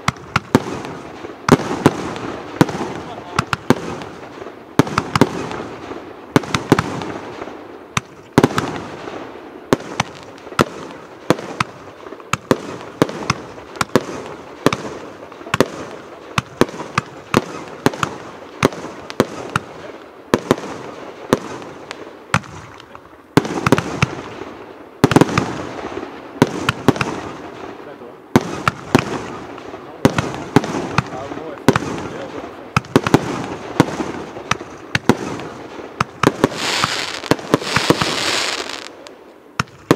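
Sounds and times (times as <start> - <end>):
firework cake bangs: 0.0 - 7.3, 23.4 - 24.4, 26.4 - 39.9
firework hiss: 33.1 - 39.2.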